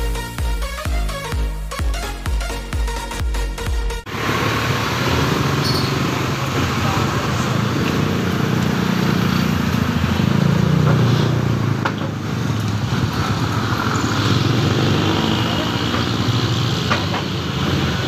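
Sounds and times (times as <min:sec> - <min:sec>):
vehicles driving past: 0:04.1 - 0:18.0.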